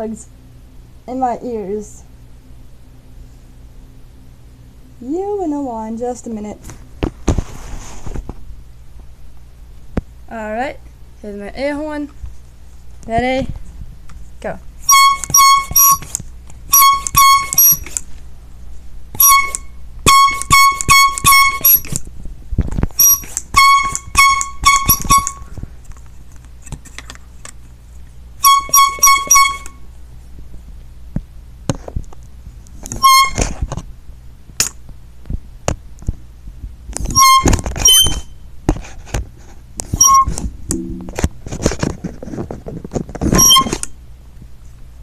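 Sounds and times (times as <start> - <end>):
air horn blasts: 14.8 - 16.1, 16.7 - 17.8, 19.2 - 21.9, 23.0 - 25.5, 28.4 - 29.8, 37.1 - 38.1.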